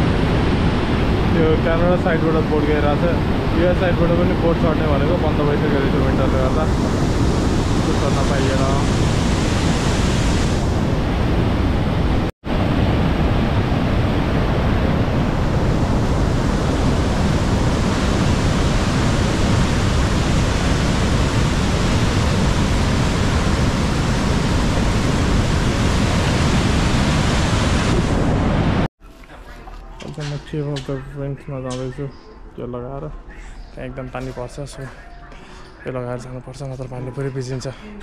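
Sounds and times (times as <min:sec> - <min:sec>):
wind on microphone: 0:00.0 - 0:28.9.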